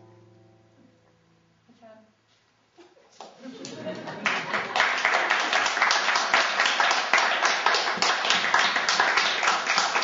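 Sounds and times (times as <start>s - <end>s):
hands clapping: 3.2s - 10.0s.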